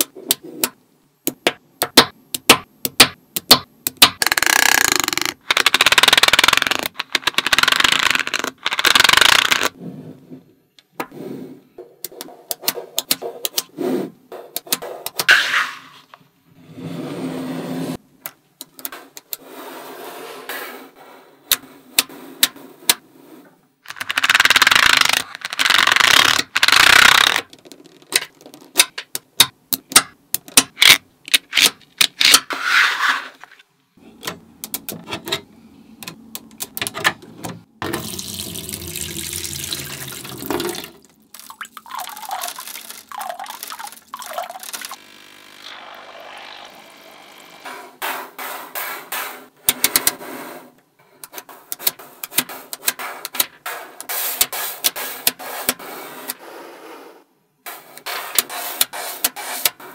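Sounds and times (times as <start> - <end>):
magnet balls clicking together: 1.4 - 9.8.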